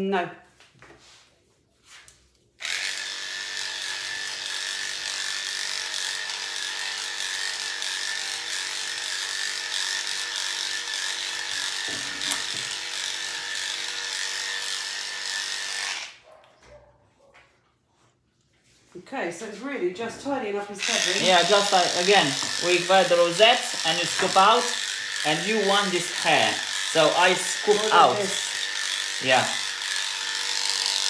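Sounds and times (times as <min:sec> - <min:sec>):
electric clippers humming: 0:02.6 - 0:16.2, 0:20.8 - 0:31.0.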